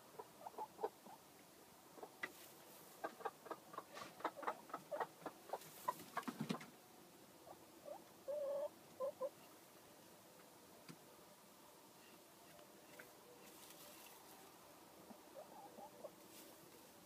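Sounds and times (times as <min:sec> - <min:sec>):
hen clucking: 0:00.0 - 0:06.7, 0:07.4 - 0:09.6, 0:14.0 - 0:16.3
hen rustling straw: 0:02.2 - 0:03.1, 0:05.5 - 0:06.3, 0:13.4 - 0:14.6, 0:15.8 - 0:17.0.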